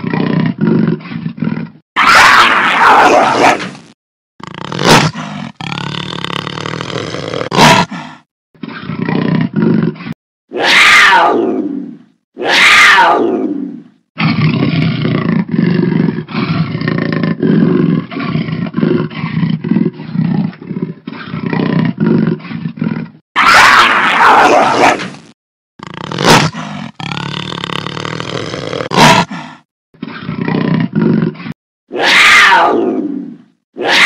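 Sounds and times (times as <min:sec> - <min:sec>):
jaguar snarls and growls: 0:00.0 - 0:34.0
rapid rhythmic jaguar grunts: 0:04.4 - 0:10.2.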